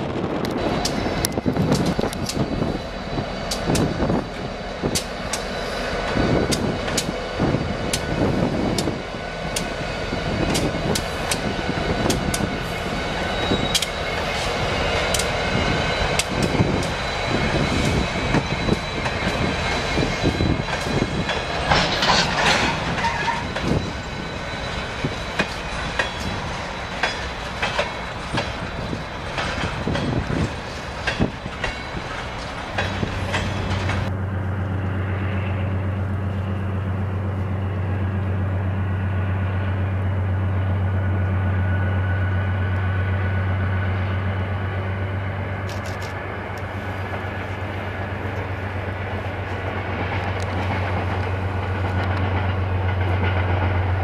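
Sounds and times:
diesel locomotives rumbling: 0.0s - 54.0s
train wheels clacking on rail joints: 0.3s - 34.1s, 45.6s - 54.0s
high-pitched wheel squeal: 11.9s - 28.9s.

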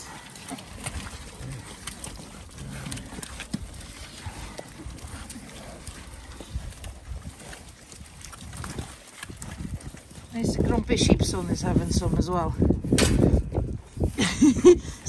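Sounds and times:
pigs chewing bread: 0.0s - 15.0s.

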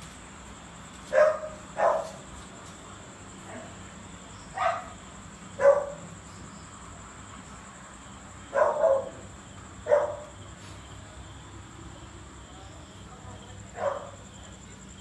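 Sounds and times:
dog barking: 1.1s - 2.2s, 4.5s - 5.0s, 5.6s - 6.1s, 8.5s - 10.4s, 13.7s - 14.2s.

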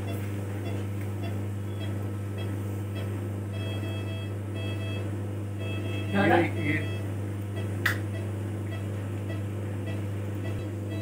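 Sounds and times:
low electrical hum: 0.0s - 11.0s.

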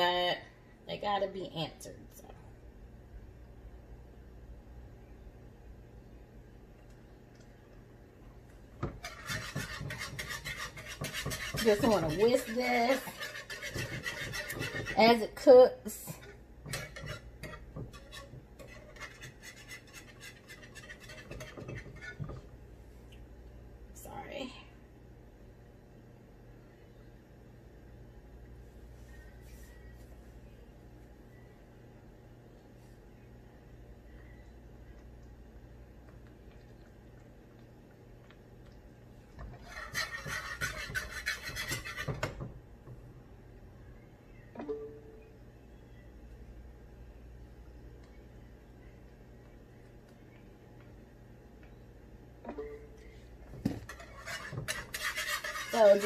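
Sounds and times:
whisk scraping a skillet: 8.8s - 22.5s, 39.4s - 42.4s, 53.8s - 56.0s.

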